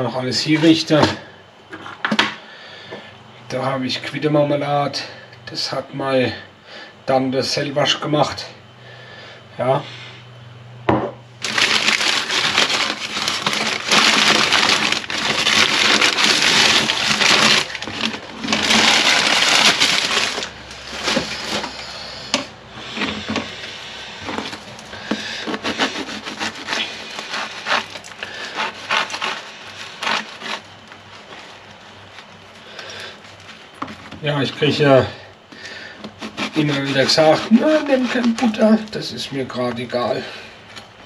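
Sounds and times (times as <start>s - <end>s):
knife crunching bread crust: 11.4s - 22.0s, 24.3s - 33.7s.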